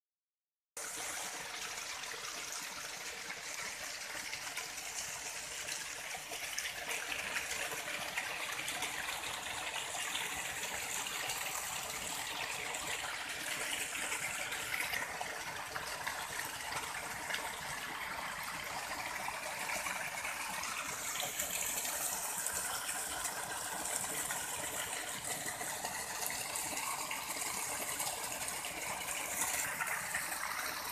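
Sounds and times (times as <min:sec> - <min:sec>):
stream running over stones: 0:00.8 - 0:30.9.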